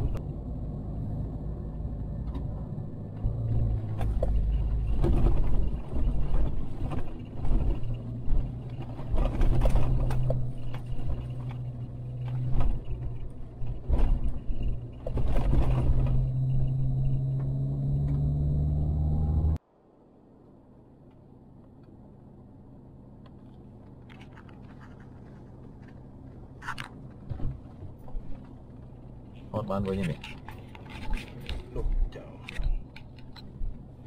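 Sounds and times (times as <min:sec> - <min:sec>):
tyres rumbling on dirt road: 0:00.0 - 0:19.6
car engine running: 0:01.4 - 0:19.6
car knocking and rattling: 0:02.2 - 0:18.3.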